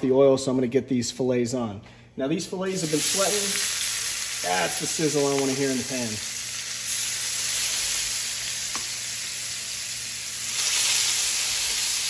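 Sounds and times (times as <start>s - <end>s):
steaks sizzling in a skillet: 2.8s - 12.0s.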